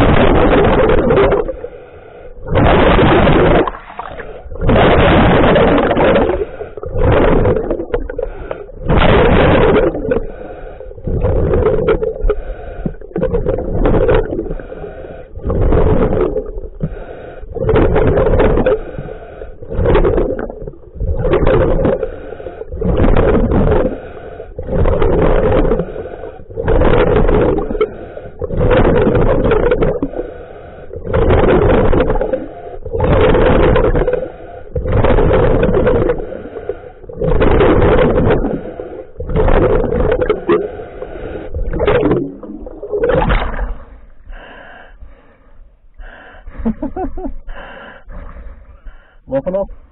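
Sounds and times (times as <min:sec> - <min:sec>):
underwater bubbles: 0:00.0 - 0:49.9
diver breathing through regulator: 0:01.4 - 0:02.6, 0:05.7 - 0:08.9, 0:09.5 - 0:42.8, 0:43.6 - 0:49.9.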